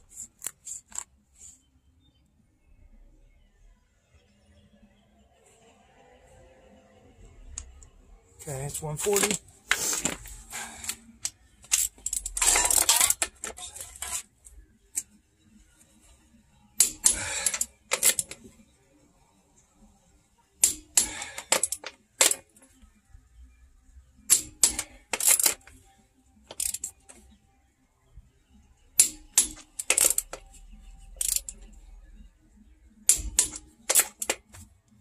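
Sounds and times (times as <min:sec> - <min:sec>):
torque wrench clicking: 0:16.8 - 0:18.4, 0:24.3 - 0:25.7, 0:26.5 - 0:27.0, 0:29.0 - 0:30.4, 0:31.2 - 0:31.6, 0:33.1 - 0:34.4.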